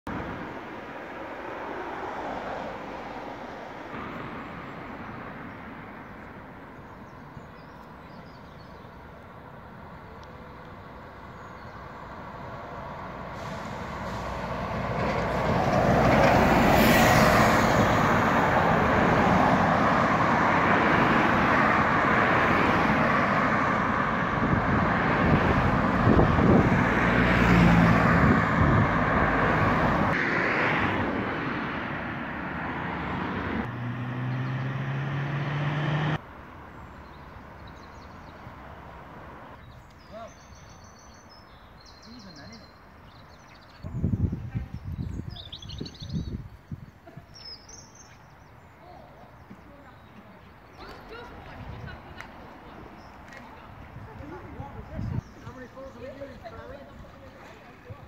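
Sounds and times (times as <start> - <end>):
bus driving past: 0.1 - 39.8
cars passing: 0.1 - 46.3, 47.5 - 58.0.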